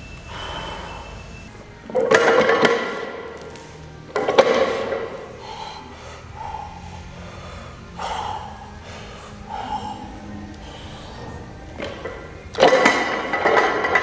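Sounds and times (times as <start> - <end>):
forceful breathing: 0.2 - 1.5, 4.6 - 12.0.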